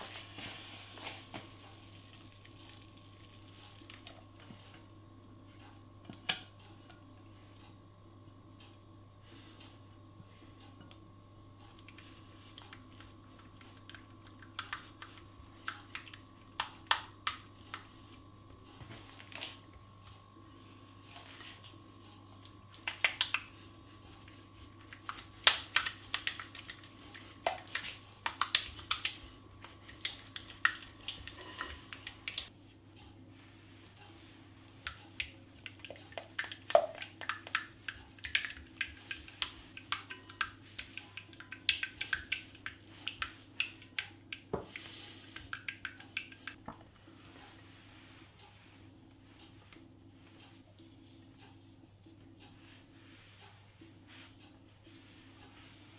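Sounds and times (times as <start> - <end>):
spatula tapping glass bowl: 31.2 - 32.1, 39.1 - 42.3.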